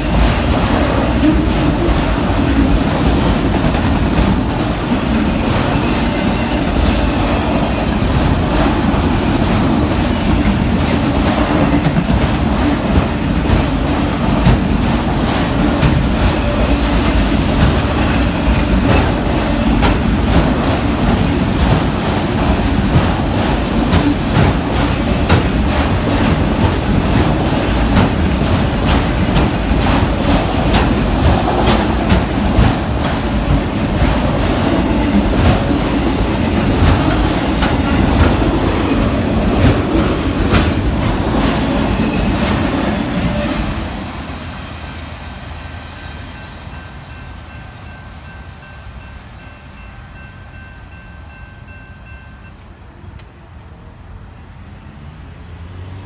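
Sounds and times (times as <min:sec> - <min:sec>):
wheels clacking over rail joints: 0:00.0 - 0:44.0
steel wheels rumbling on rail: 0:00.0 - 0:56.0.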